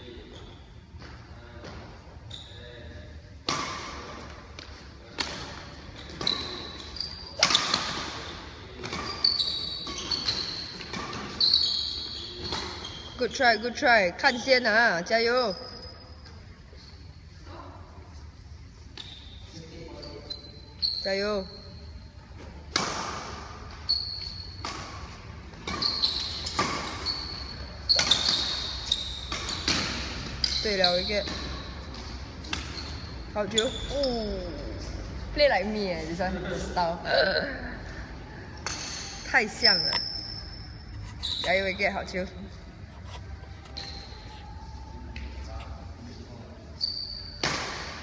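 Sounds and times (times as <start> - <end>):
shoes squeaking on court: 0.1 - 17.4, 18.1 - 36.2, 38.6 - 48.0
rackets hitting shuttlecock: 3.4 - 13.0, 22.6 - 30.6, 31.2 - 33.0, 38.5 - 40.1, 47.4 - 48.0.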